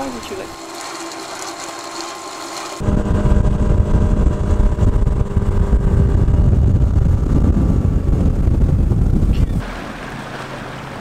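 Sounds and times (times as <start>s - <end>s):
outboard motor running: 0.0s - 11.0s
wind rushing: 2.8s - 9.6s
water rushing past boat: 2.8s - 11.0s.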